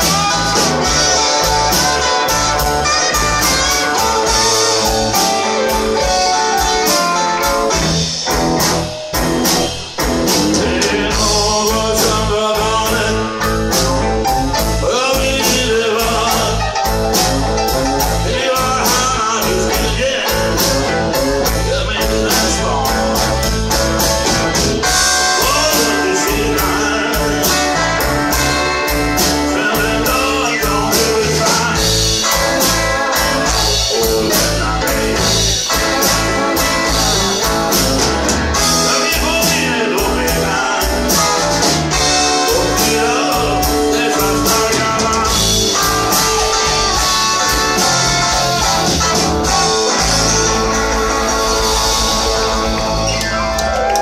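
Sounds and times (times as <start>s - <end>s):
drums keeping a steady beat: 0.0s - 54.0s
electric guitars: 0.0s - 54.0s
keyboards: 0.0s - 54.0s.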